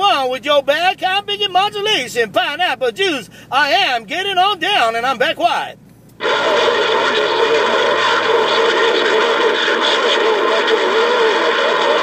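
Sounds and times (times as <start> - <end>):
faint warbling radio voices: 6.2 - 12.0
radio static: 6.2 - 12.0.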